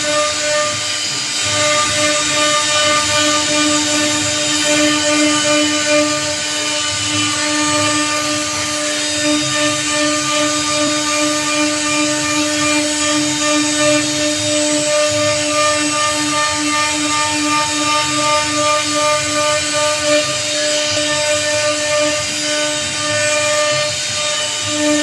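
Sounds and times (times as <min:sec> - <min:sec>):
router spindle whine: 0:00.0 - 0:25.0.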